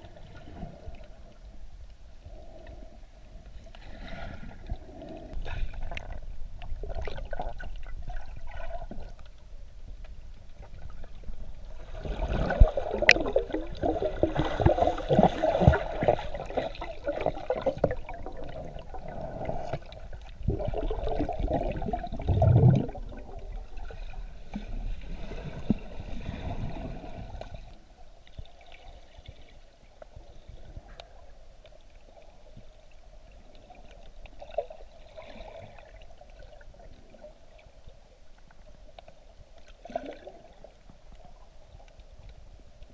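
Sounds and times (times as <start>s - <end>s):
muffled underwater gurgling: 10.8s - 24.5s.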